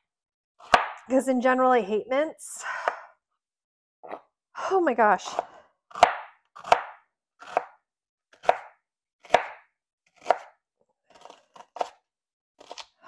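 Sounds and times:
knife chopping onion on board: 0.6 - 1.0, 5.3 - 12.0.

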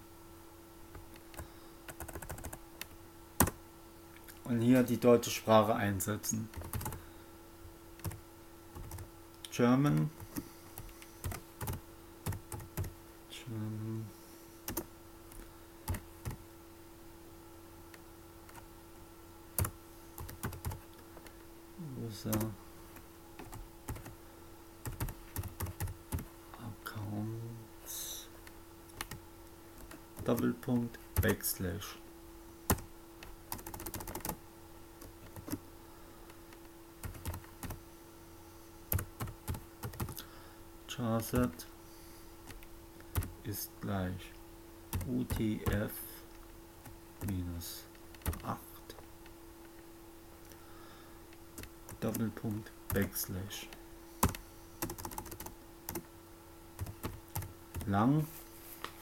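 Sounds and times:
faint steady hum: 0.0 - 59.0
keyboard typing: 0.9 - 3.6, 6.5 - 7.0, 8.0 - 9.1, 9.8 - 12.9, 23.4 - 24.1, 24.8 - 26.3, 28.9 - 29.2, 33.5 - 34.4, 35.0 - 35.6, 37.0 - 37.8, 38.9 - 40.2, 42.5 - 43.3, 48.1 - 48.5, 54.2 - 56.0, 56.8 - 57.9
typing on computer keyboard: 1.9 - 2.6, 6.5 - 7.0, 8.8 - 9.1, 33.5 - 34.4, 38.9 - 40.2, 54.2 - 56.0.

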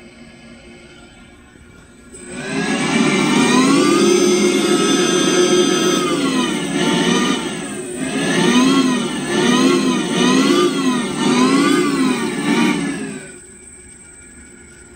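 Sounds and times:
simulated engine revving from speaker: 2.2 - 13.4.

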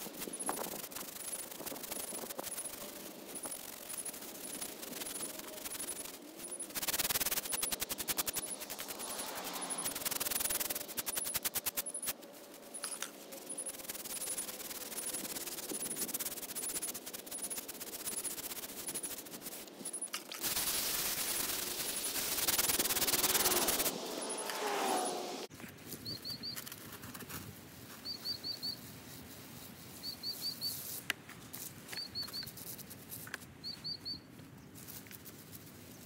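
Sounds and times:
brush scrubbing stone: 0.0 - 19.8, 20.4 - 23.9.

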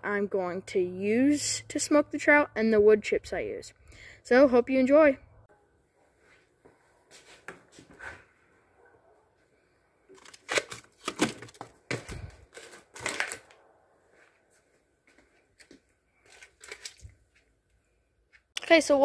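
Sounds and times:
plastic-wrapped food crinkling: 10.1 - 13.6, 16.2 - 17.2.

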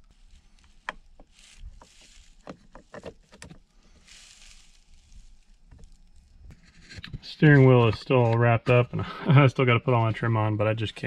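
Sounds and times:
soft rustle: 0.0 - 8.8.

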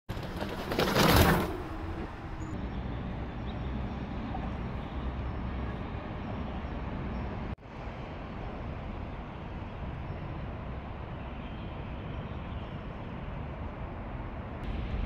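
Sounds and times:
wind: 0.0 - 15.0
road noise: 0.1 - 15.0
low rumble: 14.6 - 15.0.

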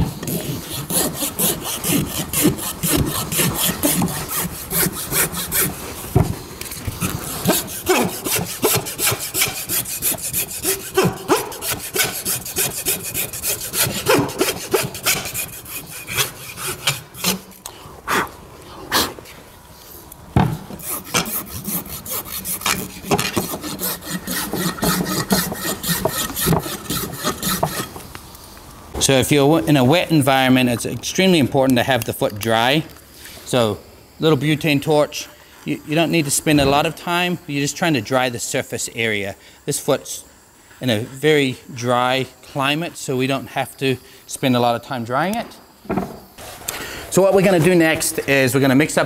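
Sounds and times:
rasp scraping hoof: 0.0 - 17.5, 20.5 - 28.0.

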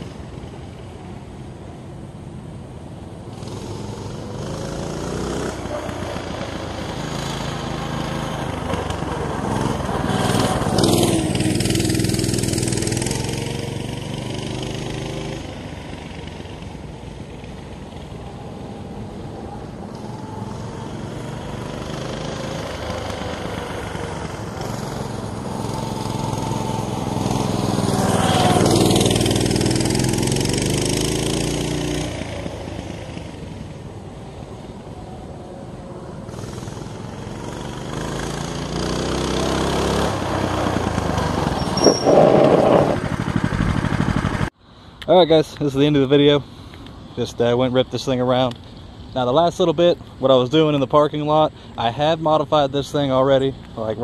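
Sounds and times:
mini bike engine running: 3.3 - 18.4, 19.4 - 33.8, 36.1 - 44.5.

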